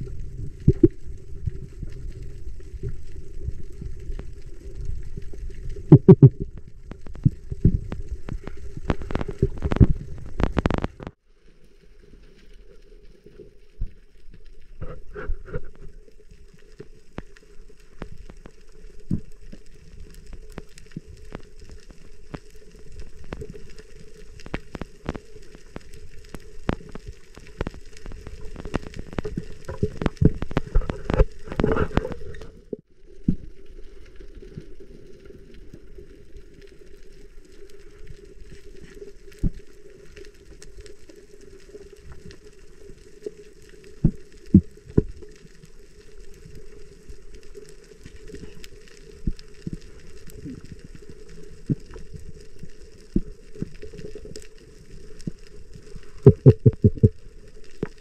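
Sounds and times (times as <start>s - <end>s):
underwater clicks and crackling: 0.0s - 58.0s
muffled underwater hum: 55.0s - 58.0s.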